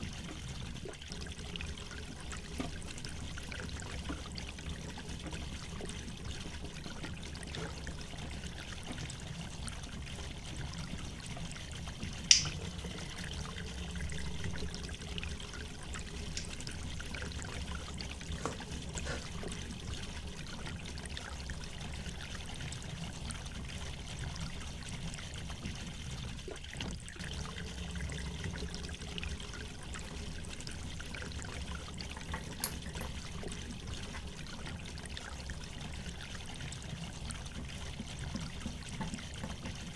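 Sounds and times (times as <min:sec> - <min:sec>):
sharp click: 0:12.3 - 0:12.6.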